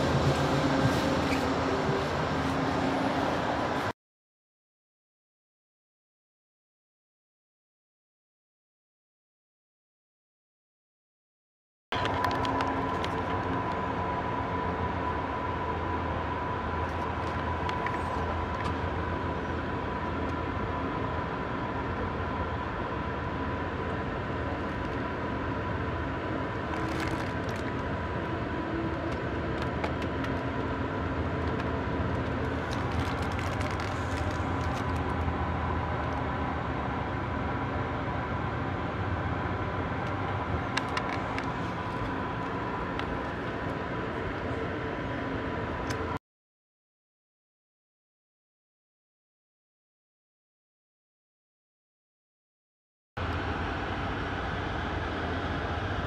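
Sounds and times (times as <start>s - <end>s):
train low rumble and hum: 0.0s - 4.0s, 11.9s - 46.2s, 53.2s - 56.0s.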